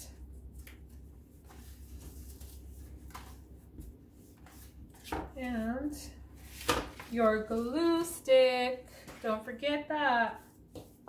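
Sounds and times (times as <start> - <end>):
low steady hum: 0.0 - 11.0
paper envelope rustling: 6.4 - 7.8.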